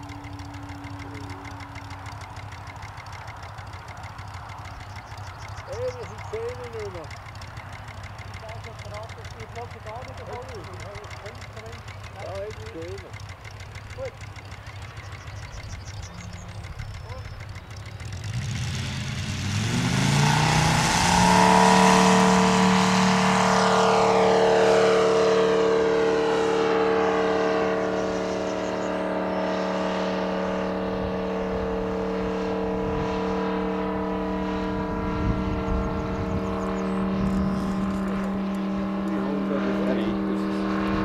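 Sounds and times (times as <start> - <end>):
model aircraft engine: 0.0 - 41.0.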